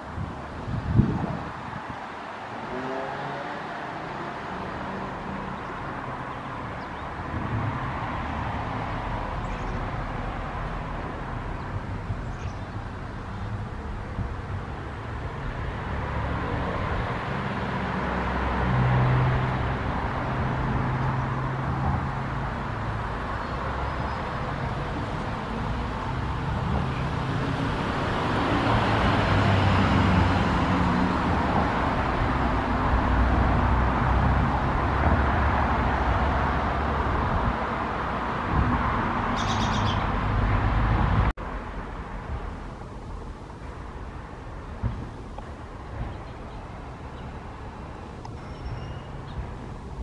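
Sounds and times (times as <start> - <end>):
road traffic rumble: 0.0 - 50.0
bird chirp: 9.4 - 9.8, 11.5 - 13.6, 39.4 - 40.2, 48.4 - 49.5.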